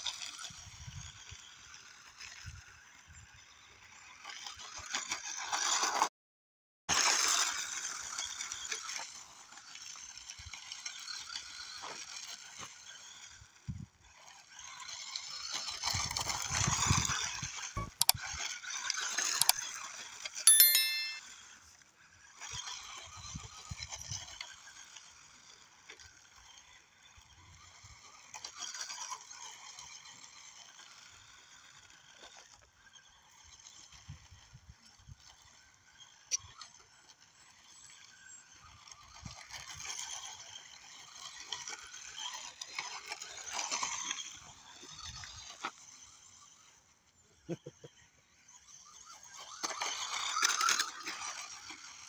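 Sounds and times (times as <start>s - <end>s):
sharp ringing tone: 20.5s - 21.3s.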